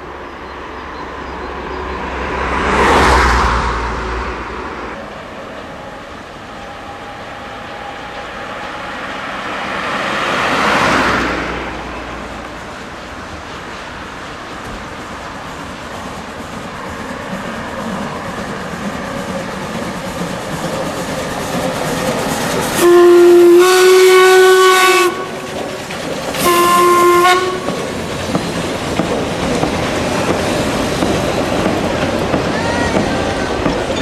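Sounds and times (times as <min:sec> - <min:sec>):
train running noise: 0:00.0 - 0:34.0
steam whistle blasts: 0:22.8 - 0:25.4, 0:26.4 - 0:27.7.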